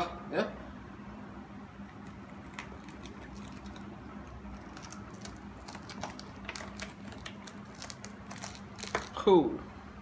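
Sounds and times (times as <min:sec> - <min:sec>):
husk cracking: 0:01.9 - 0:09.3.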